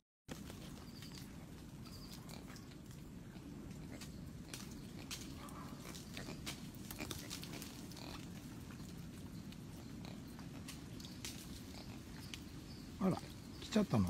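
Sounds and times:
lemurs grunting softly: 0:00.4 - 0:14.0
clicks and rustles from climbing: 0:04.0 - 0:08.3.

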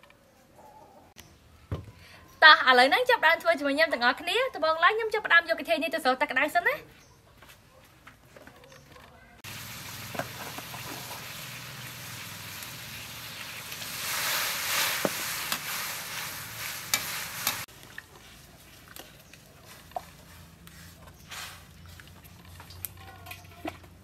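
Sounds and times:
hot water hissing and bubbling: 0:09.4 - 0:18.0
metal tongs clinking on wok: 0:16.8 - 0:17.6.

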